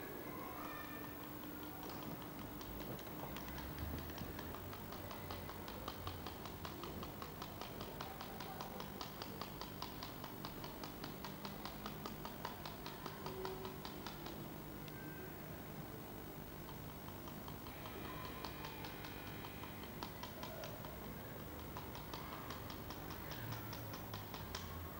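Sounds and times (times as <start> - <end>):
rapid even ticking: 1.1 - 15.0, 16.2 - 24.9.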